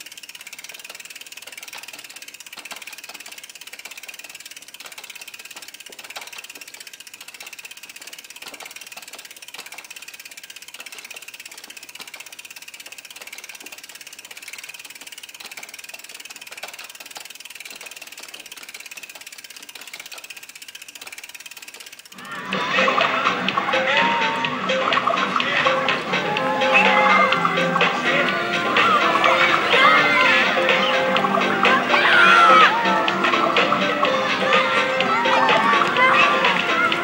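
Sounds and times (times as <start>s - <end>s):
bicycle freewheel ratchet ticking: 0.0s - 37.0s.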